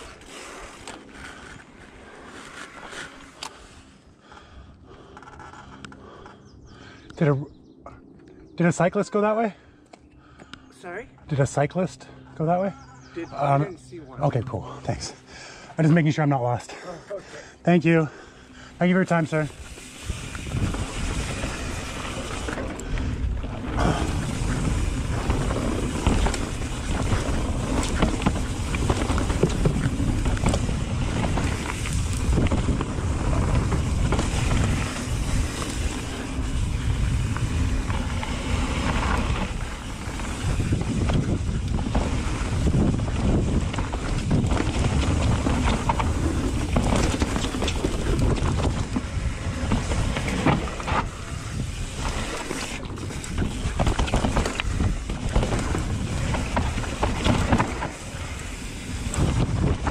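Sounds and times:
tyres rolling on dirt: 17.8 - 59.9
bike rattles and knocks: 19.3 - 59.9
wind buffeting microphone: 19.3 - 59.9.

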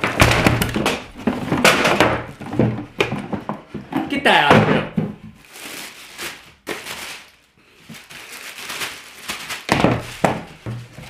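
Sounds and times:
plastic packaging crinkling: 5.4 - 11.0.

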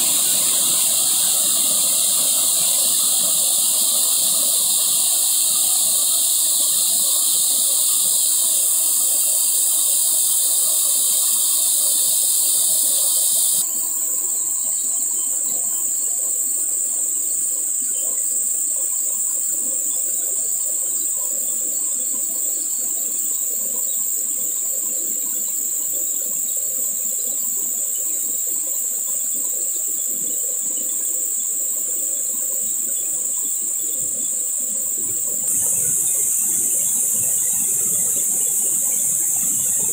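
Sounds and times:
waterfall rushing: 0.0 - 3.9, 35.5 - 39.9
shrill insect chorus: 0.0 - 39.9.

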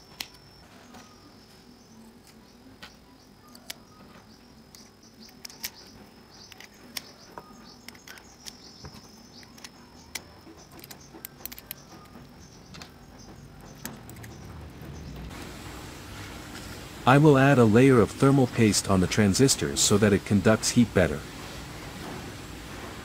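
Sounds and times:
small clicks and taps of components: 4.7 - 5.8, 6.4 - 12.9.

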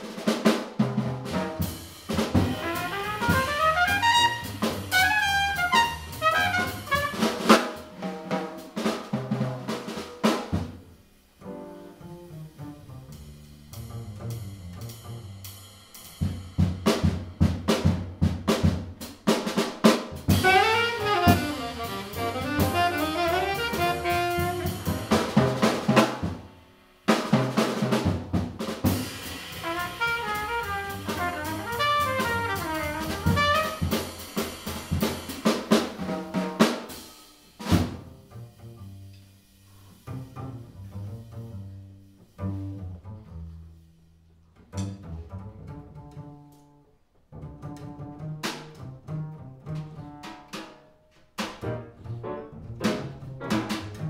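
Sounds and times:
drum kit: 0.0 - 43.6, 44.7 - 46.7, 47.3 - 54.0
walking bass: 0.9 - 10.8, 11.4 - 26.5, 27.3 - 36.3, 40.0 - 43.9, 44.5 - 46.7, 47.3 - 50.6, 51.6 - 54.0
trumpet solo: 2.4 - 7.6, 20.3 - 25.5, 29.5 - 34.0.

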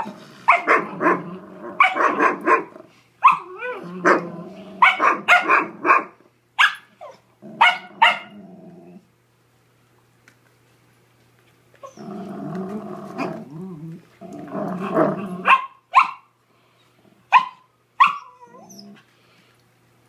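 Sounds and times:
dogs play-growling: 0.0 - 4.9, 7.4 - 9.1, 11.8 - 15.5.

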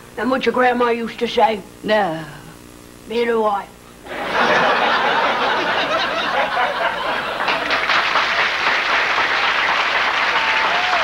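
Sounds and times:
audience laughing: 4.1 - 8.6
audience applauding: 5.6 - 11.0.

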